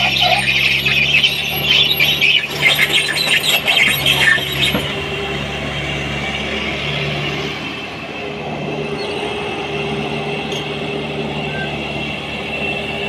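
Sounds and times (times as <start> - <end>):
diesel engine hum: 0.0 - 13.0
excavator tracks squealing: 0.0 - 13.0.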